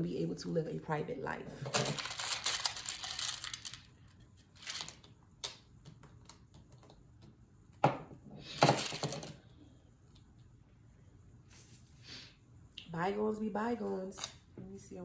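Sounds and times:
cards riffling: 1.8 - 3.9, 4.6 - 5.6.

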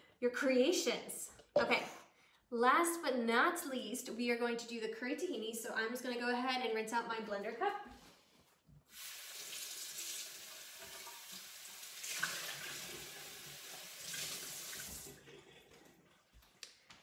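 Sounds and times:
kitchen tap running: 8.9 - 15.2.

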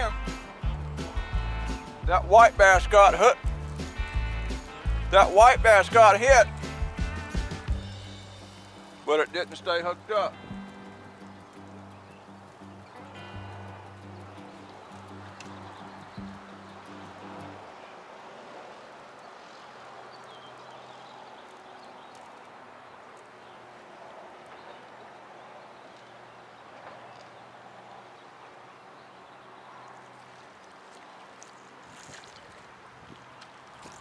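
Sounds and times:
wind noise: 31.9 - 34.0.

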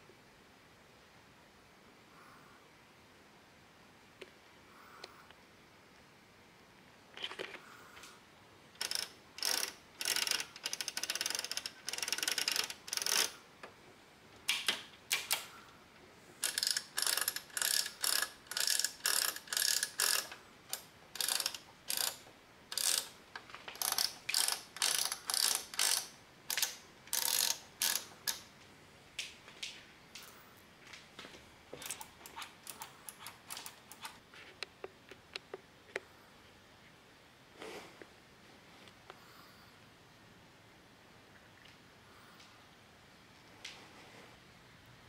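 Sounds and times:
rotary switch clicking: 8.8 - 13.3, 16.4 - 23.1.

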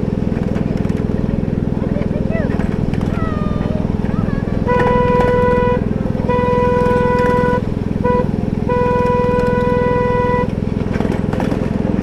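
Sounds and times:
locomotive engine running: 0.0 - 12.0
train horn blasts: 4.6 - 10.6.

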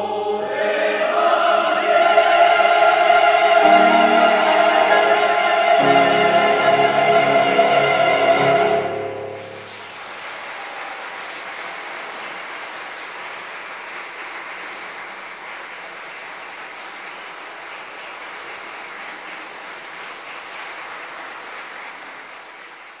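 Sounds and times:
audience applauding: 8.4 - 23.0.

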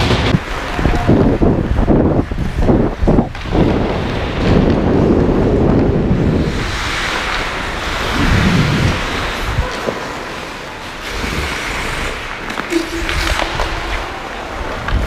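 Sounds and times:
wind buffeting microphone: 0.0 - 9.8
skate blades scraping ice: 4.1 - 15.0.

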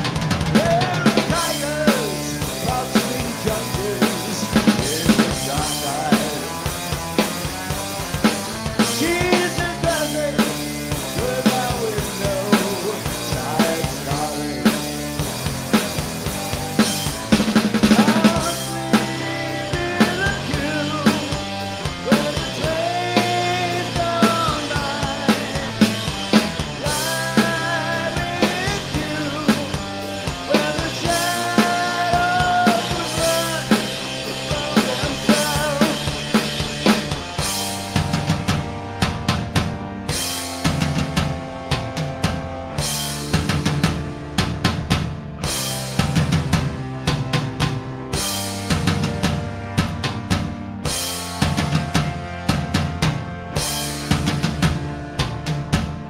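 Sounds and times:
drum kit with snare and cymbals: 0.0 - 56.0
electric guitar riff: 0.0 - 56.0.

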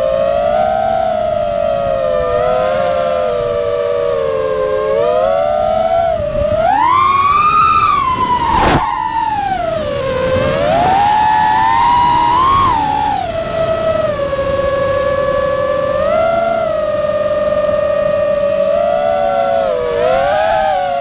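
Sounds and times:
drone motors whining: 0.0 - 21.0
brief rush of noise: 8.5 - 8.9.

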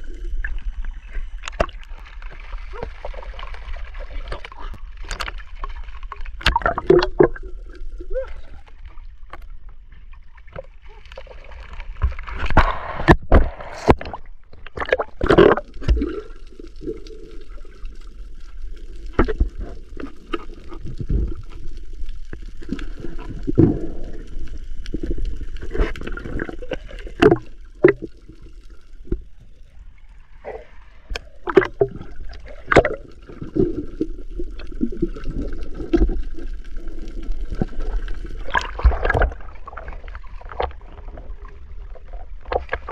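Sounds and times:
water sloshing and gurgling: 0.0 - 42.9
knocks and splashes: 2.7 - 7.5, 11.8 - 16.3, 25.6 - 28.2, 31.1 - 34.1, 37.6 - 41.3.

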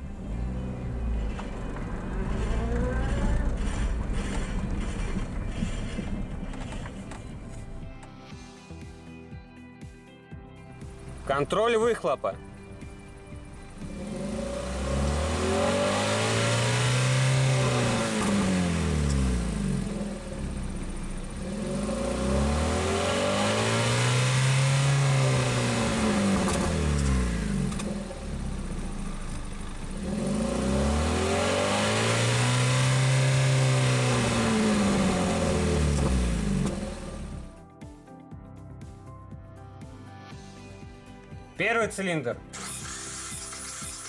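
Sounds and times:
car engine revving: 0.0 - 8.2, 13.1 - 37.5.

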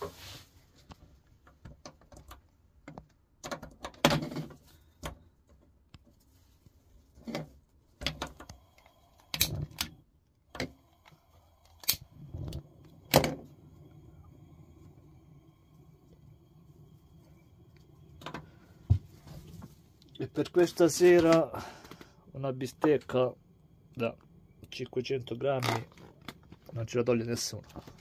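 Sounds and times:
gas flame hissing: 8.0 - 25.9.

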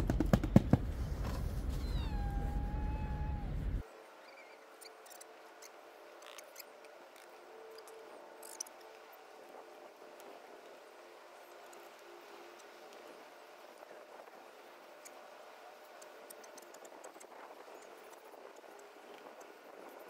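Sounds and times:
cat meowing: 1.8 - 3.7.

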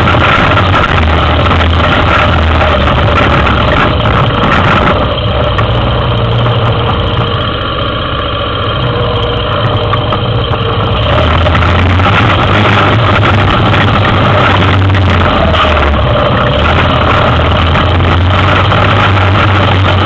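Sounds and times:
atv engine running at low speed: 0.0 - 20.0.

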